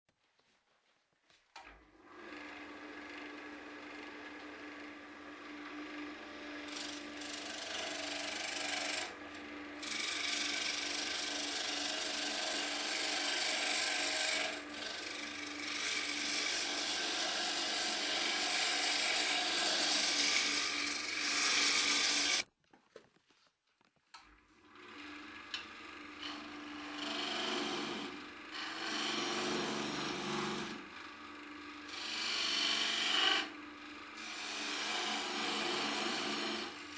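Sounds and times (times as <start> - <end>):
turning tool cutting wood: 1.6 - 22.5, 24.2 - 36.9
wood lathe motor hum: 1.6 - 22.5, 24.2 - 36.9.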